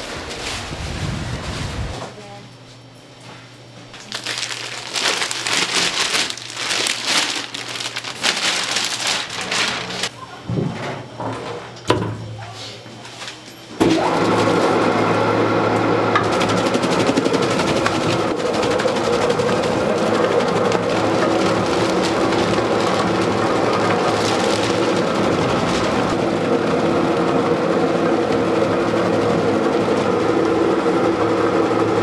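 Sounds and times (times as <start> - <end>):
machinery crackling and clicking: 4.1 - 10.1, 16.2 - 26.2
low motor hum: 14.3 - 32.0.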